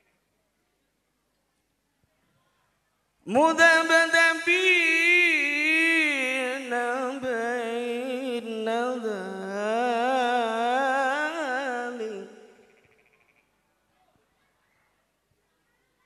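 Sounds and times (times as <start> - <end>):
man reciting melodically into microphone: 3.2 - 12.8.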